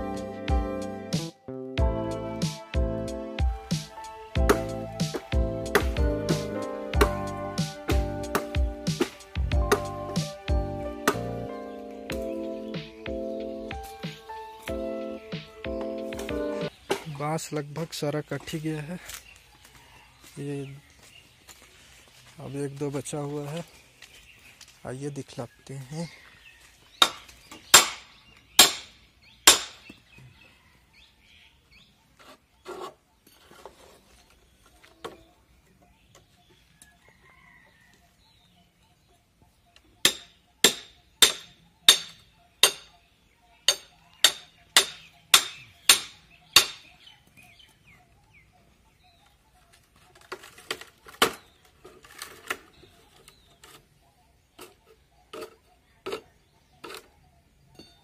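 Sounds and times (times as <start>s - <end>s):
hammer striking metal chisel: 27.0s - 28.0s, 28.6s - 28.9s, 29.5s - 29.8s, 40.0s - 42.9s, 43.6s - 46.9s.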